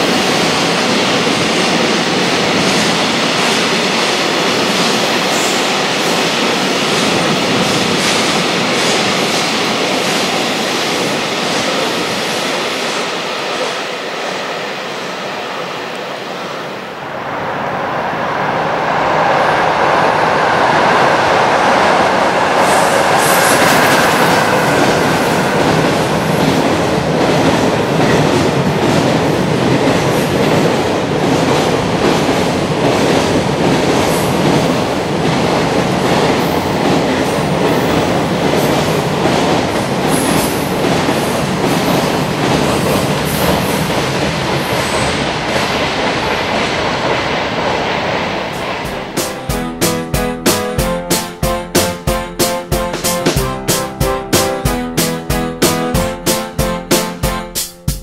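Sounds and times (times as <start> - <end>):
freight train rumbling past: 0.0 - 58.0.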